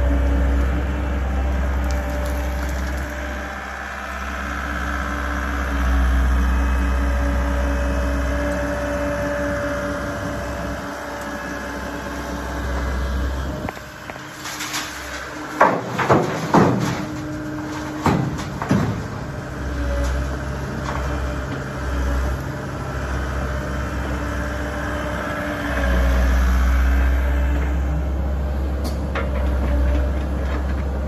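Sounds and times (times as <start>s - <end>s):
excavator diesel engine: 0.0s - 31.0s
rubble bangs and clatters: 13.7s - 21.2s.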